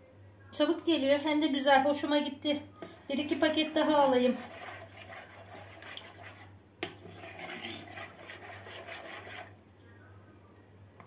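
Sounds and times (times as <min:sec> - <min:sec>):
metal spoon scraping plastic bowl: 0:02.8 - 0:09.6.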